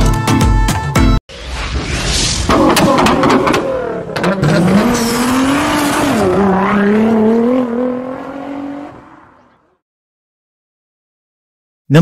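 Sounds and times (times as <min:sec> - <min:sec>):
car engine revving: 0:02.5 - 0:09.7.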